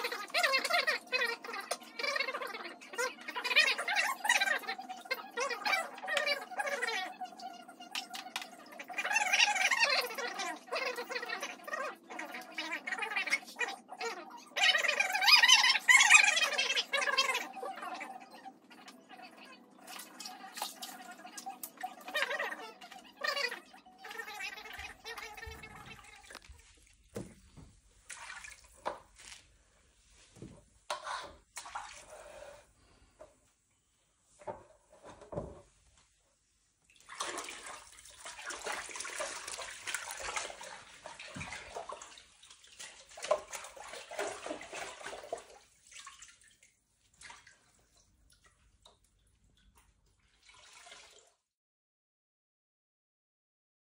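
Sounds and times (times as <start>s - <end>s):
water splashing in a basin: 19.7s - 29.5s, 31.0s - 33.1s, 36.8s - 51.5s.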